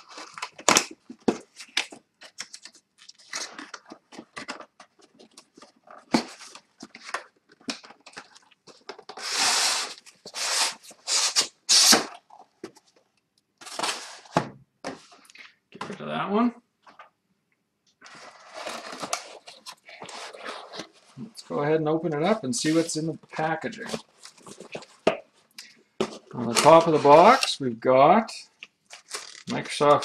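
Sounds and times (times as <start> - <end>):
cardboard carton sliding out: 9.2 - 12.1.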